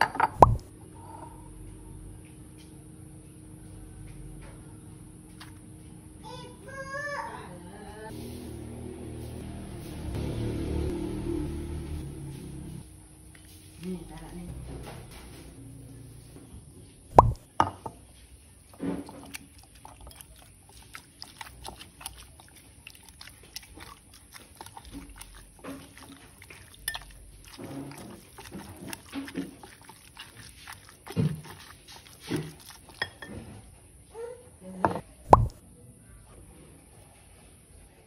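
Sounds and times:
soft squishing: 18.1 - 33.3
tofu mashed in glass bowl: 19.0 - 33.3.

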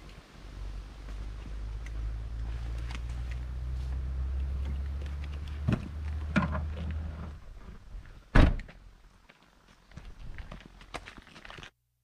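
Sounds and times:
car tailgate slamming: 8.3 - 8.7.

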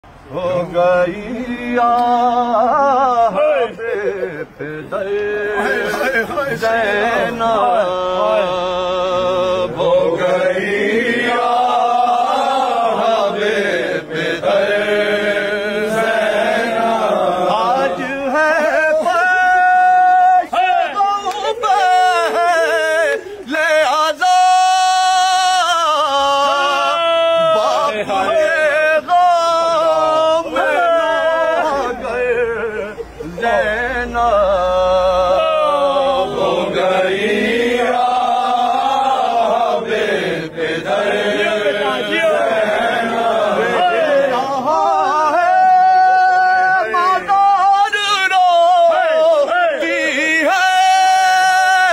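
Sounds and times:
man chanting: 0.3 - 11.8, 12.5 - 39.4, 40.4 - 51.9.

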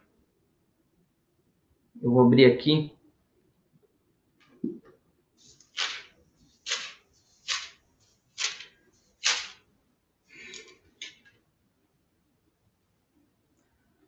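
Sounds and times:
book pages flipping: 5.4 - 9.7.

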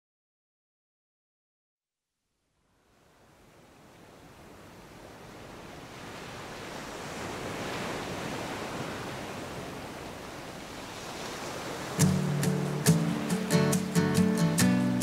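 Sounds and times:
waves washing over rocky shore: 3.6 - 14.2.

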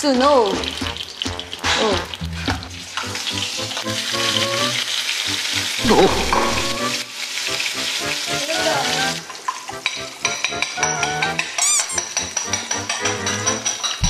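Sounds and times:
meat sizzling in frying pan: 0.0 - 11.6
person exclaiming: 5.8 - 6.8.

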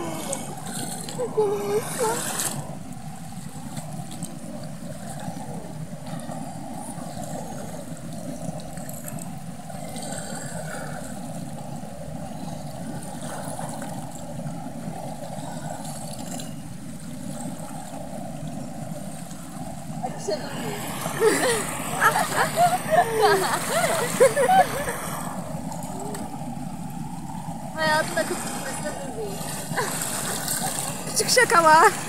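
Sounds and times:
stream rushing over stones: 17.0 - 32.0.

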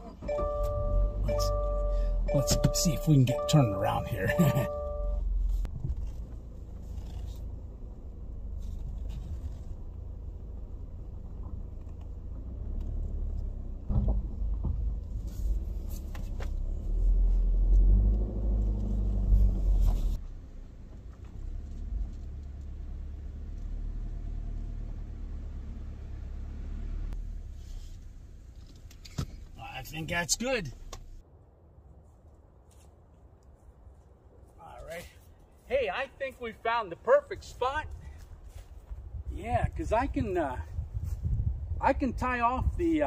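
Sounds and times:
car driving slowly: 0.0 - 31.2.

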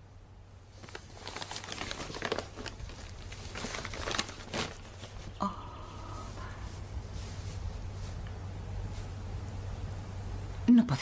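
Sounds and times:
wrapping paper crinkling: 0.7 - 5.4.

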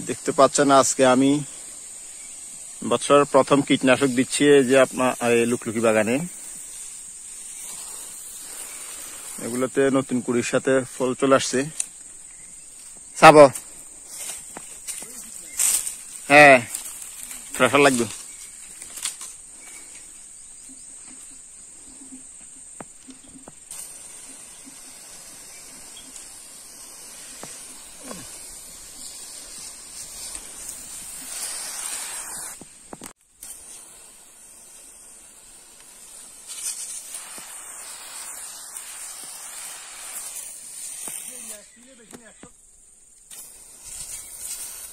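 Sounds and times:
spray wand hissing: 0.0 - 42.5, 43.2 - 44.9
insects shrilling: 0.0 - 44.9.

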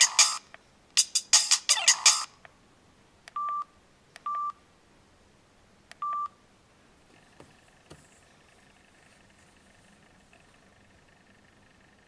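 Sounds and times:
short keypad beeps: 6.0 - 6.3.

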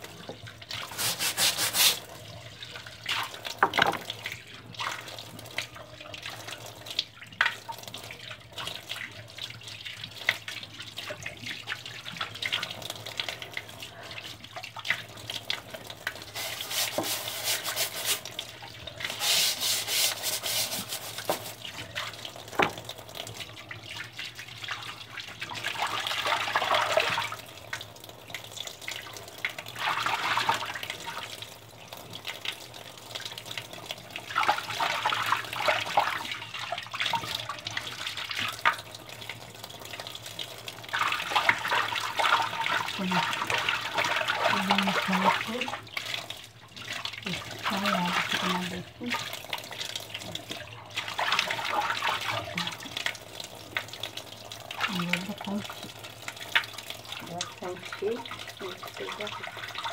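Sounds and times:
wet fabric scrubbed by hand: 0.8 - 2.1, 16.2 - 18.3, 19.1 - 21.7.

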